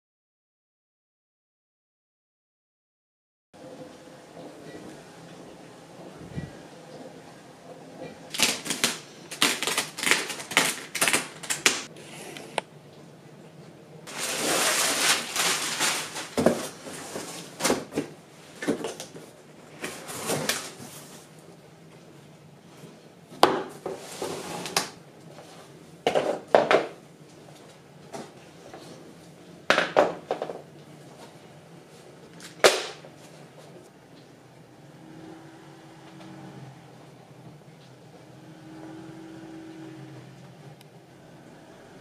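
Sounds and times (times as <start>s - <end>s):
cardboard packaging rustling: 8.3s - 11.9s, 14.1s - 21.3s.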